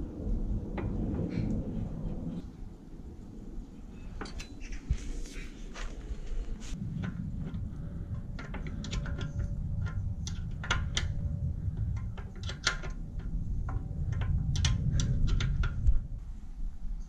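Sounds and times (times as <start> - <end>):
low steady rumble: 0.0 - 17.0
tools and fittings clicking: 6.9 - 16.1.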